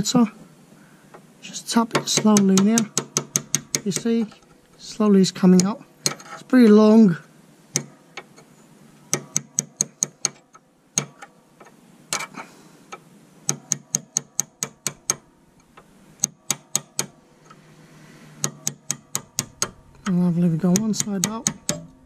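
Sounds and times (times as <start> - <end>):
hammer tapping on steel: 1.9 - 4.4, 9.1 - 10.4, 11.0 - 11.3, 13.5 - 17.2, 18.4 - 22.0.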